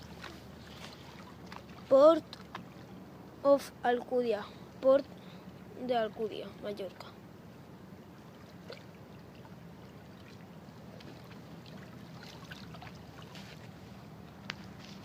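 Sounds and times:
small waves lapping on rocks: 0.0 - 3.0, 8.1 - 15.0
steady low hum: 0.0 - 15.0.

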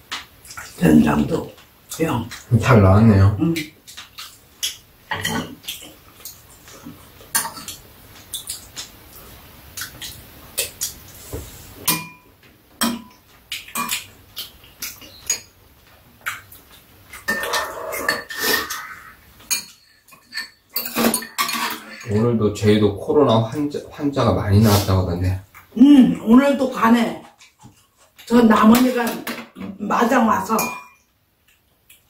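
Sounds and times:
metal utensils clinking against bowls: 14.8 - 15.5, 17.1 - 22.2, 30.4 - 31.1.

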